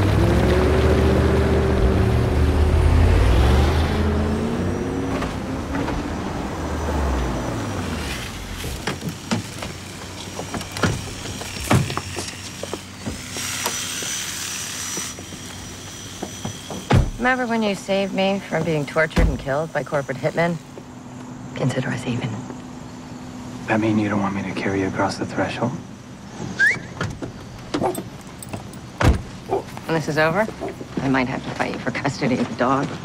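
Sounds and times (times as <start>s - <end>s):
quiet street sounds: 0.0s - 33.0s.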